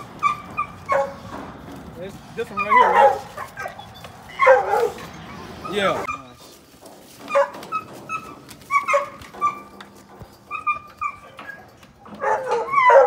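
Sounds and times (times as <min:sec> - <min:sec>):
dogs barking and yipping: 0:00.0 - 0:13.0.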